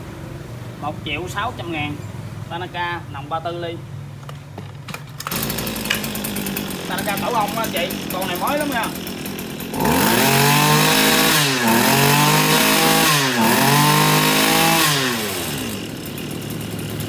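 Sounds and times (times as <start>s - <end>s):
brush cutter engine revving: 5.0s - 17.0s.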